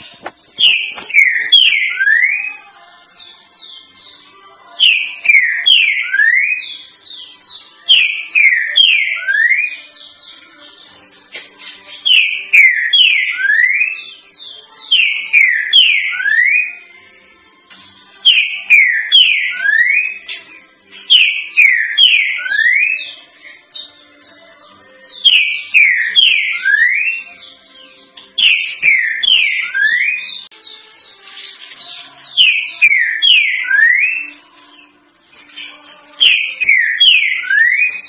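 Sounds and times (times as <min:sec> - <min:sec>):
bird singing descending notes: 0:00.0 - 0:02.6, 0:04.8 - 0:10.7, 0:12.0 - 0:16.9, 0:21.1 - 0:23.2, 0:23.8 - 0:27.6, 0:28.4 - 0:31.1, 0:32.2 - 0:34.4, 0:35.7 - 0:38.0.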